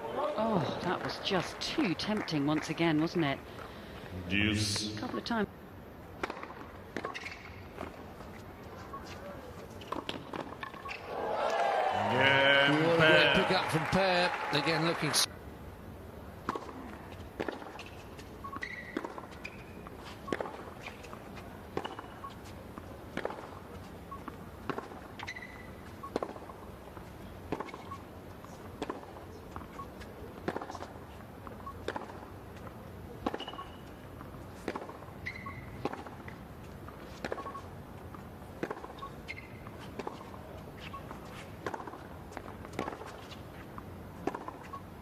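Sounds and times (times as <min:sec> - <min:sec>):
tennis ball hit by racket: 0:06.2 - 0:07.5, 0:30.4 - 0:30.8, 0:31.9 - 0:32.3, 0:33.2 - 0:35.1, 0:35.8 - 0:36.2, 0:38.6 - 0:40.3, 0:41.6 - 0:43.2, 0:44.2 - 0:44.6
ball bouncing: 0:06.2 - 0:08.0, 0:23.1 - 0:23.6, 0:24.6 - 0:26.6, 0:33.2 - 0:36.4, 0:38.6 - 0:40.2, 0:44.2 - 0:44.7
shoe squeaks: 0:07.0 - 0:11.1, 0:17.8 - 0:22.5, 0:25.1 - 0:26.2, 0:27.6 - 0:28.1, 0:33.3 - 0:34.0, 0:34.8 - 0:36.2, 0:37.0 - 0:37.8, 0:38.7 - 0:41.6, 0:44.4 - 0:44.9.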